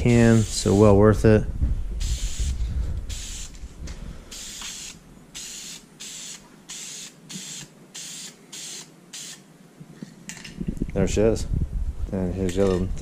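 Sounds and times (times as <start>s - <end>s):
aerosol spray can hissing: 0.3s - 0.8s, 2.0s - 3.5s, 4.4s - 9.4s.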